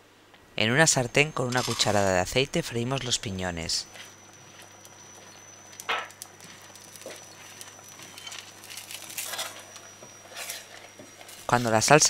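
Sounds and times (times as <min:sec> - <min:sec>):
nuts sizzling in oil: 0:01.4 - 0:02.2, 0:04.4 - 0:12.0
spoon scraping a pan: 0:01.5 - 0:02.1.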